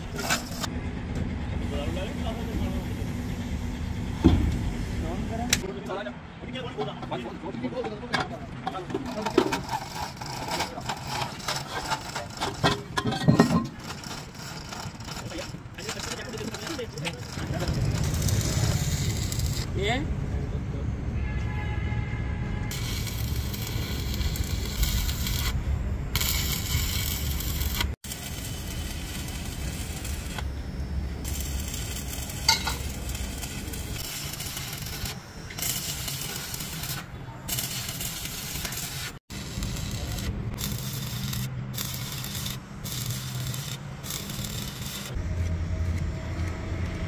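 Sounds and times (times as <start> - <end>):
welding arc crackling: 9.0 - 13.0, 13.6 - 19.9, 22.7 - 47.0
steady low rumble: 16.8 - 20.8.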